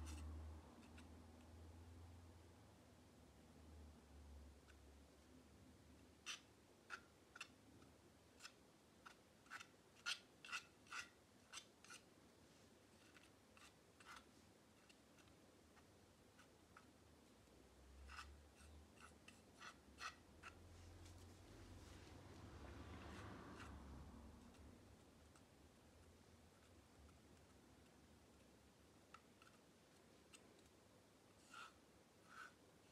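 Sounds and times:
palette knife scraping canvas: 8.4s - 12.1s, 12.9s - 15.3s, 18.0s - 22.0s, 31.3s - 32.9s.

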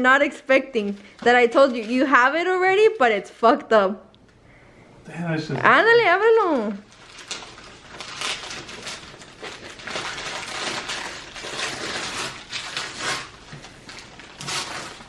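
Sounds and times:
wrapping paper rustling and tearing: 0.8s - 3.2s, 6.4s - 15.0s.

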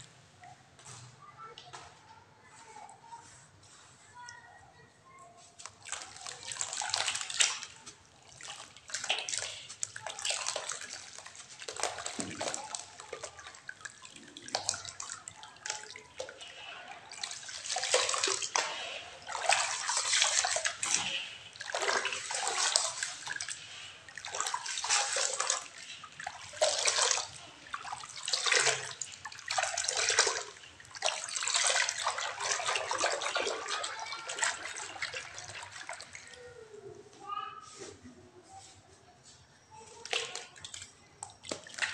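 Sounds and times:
water sloshing with shells stirred: 5.6s - 36.3s, 40.0s - 41.9s.

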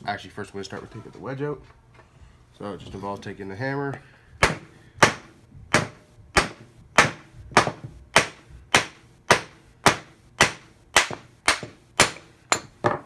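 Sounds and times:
wooden mallet knocking on wood: 5.8s - 13.0s.

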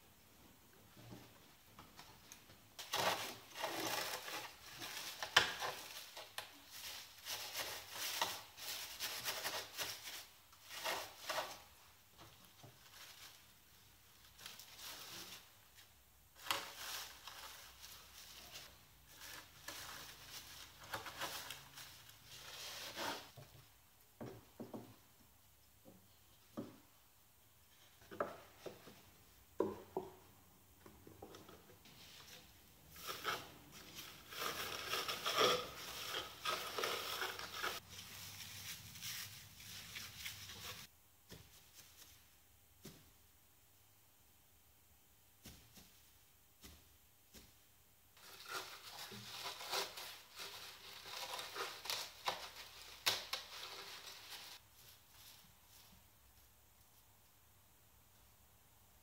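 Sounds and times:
gloved hands rustling fibres: 31.8s - 43.1s, 45.4s - 57.4s.

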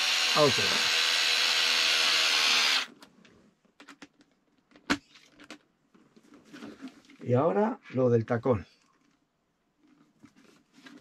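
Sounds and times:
electric screwdriver running: 0.0s - 2.9s.

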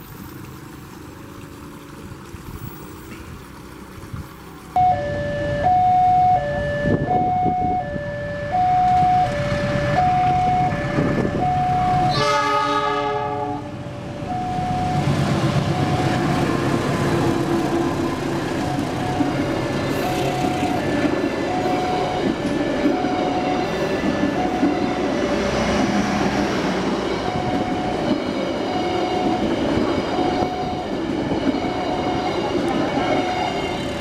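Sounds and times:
passing train rumble: 0.0s - 34.0s
level crossing two-tone alarm: 4.8s - 12.4s, 14.2s - 16.3s, 21.4s - 25.0s, 27.2s - 29.5s
locomotive horn blast: 4.8s - 13.8s.

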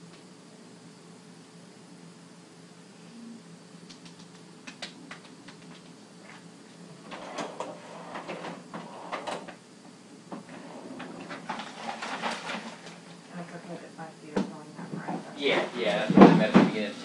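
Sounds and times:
rustling and clattering: 10.4s - 13.2s.

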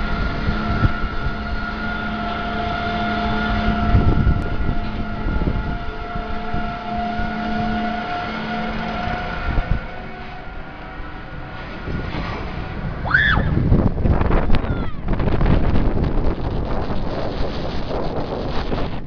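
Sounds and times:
chain lift mechanical hum: 0.0s - 13.0s
wind rumbling on microphone: 0.0s - 19.0s.

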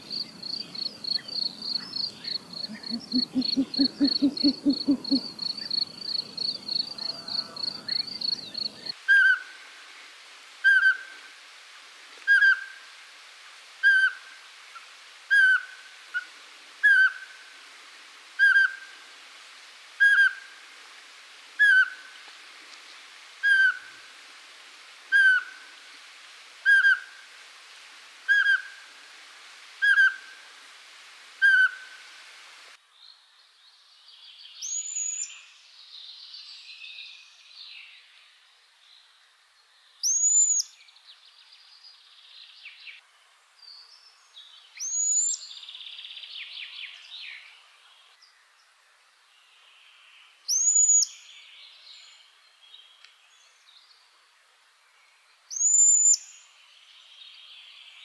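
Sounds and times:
owl piping whistles: 2.6s - 5.3s, 40.0s - 40.7s, 44.8s - 45.4s, 50.5s - 51.2s, 55.5s - 56.3s
rising and falling bird whistle: 55.6s - 56.2s.

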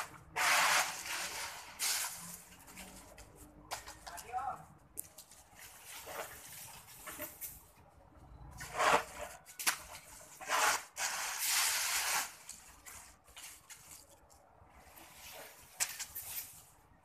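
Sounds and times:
broom sweeping leaves on concrete: 0.0s - 3.2s, 5.5s - 7.6s, 8.6s - 14.0s, 14.8s - 16.8s.

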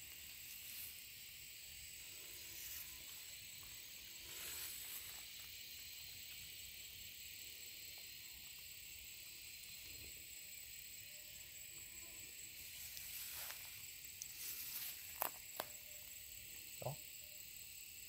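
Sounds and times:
high hiss with thin whine: 0.0s - 18.0s
rustling: 12.6s - 15.8s.

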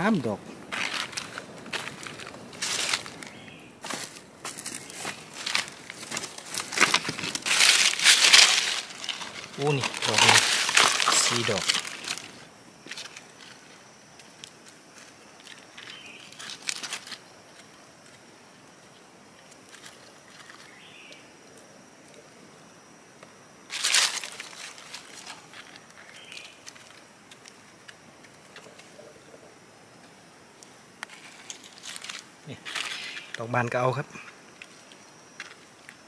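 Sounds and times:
leaves crunching: 0.6s - 17.2s, 23.7s - 28.8s, 31.0s - 33.5s
dry leaves rustling and crackling: 0.7s - 18.2s, 23.7s - 28.8s, 31.0s - 33.4s.

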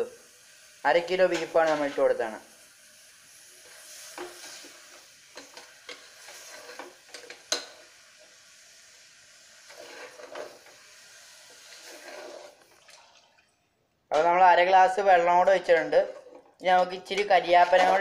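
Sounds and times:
faint sizzle: 0.0s - 12.8s
metal spoon scraping and clinking pot: 5.4s - 7.8s.

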